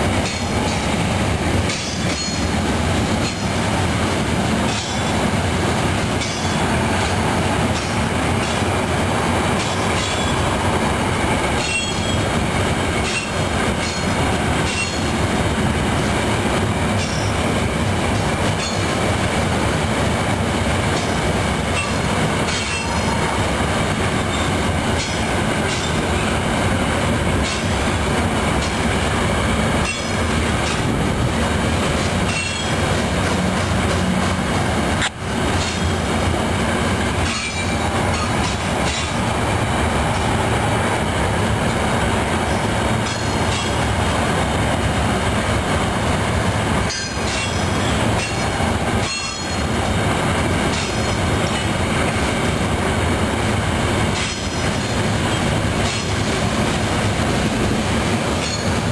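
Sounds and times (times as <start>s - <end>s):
rumble of train wheels on rails: 0.0s - 58.9s
wheels clicking over rail joints: 29.7s - 36.1s, 46.4s - 52.3s.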